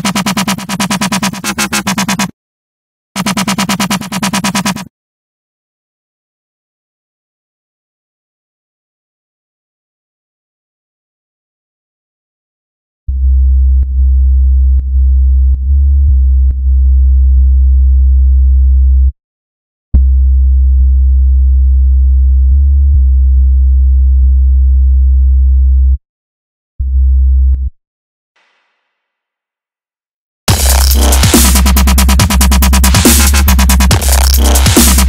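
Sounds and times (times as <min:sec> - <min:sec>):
sub bass synth notes: 0:13.1 - 0:19.1, 0:20.0 - 0:26.0, 0:30.5 - 0:35.0.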